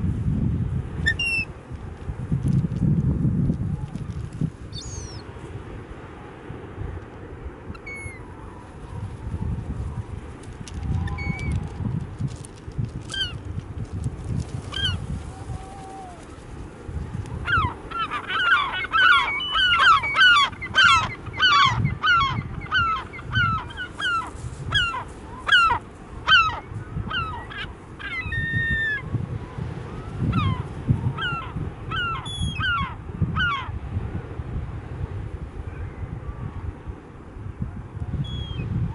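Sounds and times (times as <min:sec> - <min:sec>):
gulls yelping calls: 0:14.7 - 0:15.0, 0:17.4 - 0:29.0, 0:31.2 - 0:33.7.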